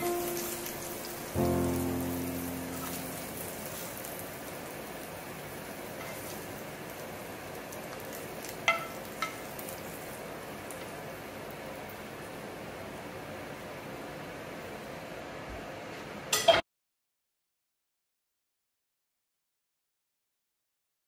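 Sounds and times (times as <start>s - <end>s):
scallops sizzling in skillet: 0.0s - 12.5s.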